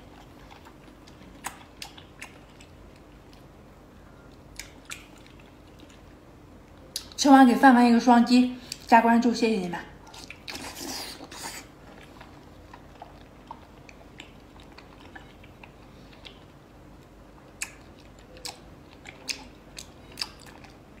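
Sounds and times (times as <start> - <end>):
person chewing: 0.0 - 7.2, 10.0 - 21.0
wet mouth clicks: 17.6 - 20.8.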